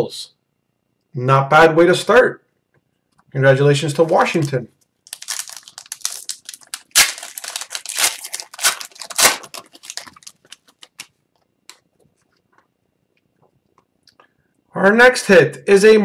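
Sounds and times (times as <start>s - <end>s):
plastic wrapper tearing and crinkling: 3.9s - 11.8s.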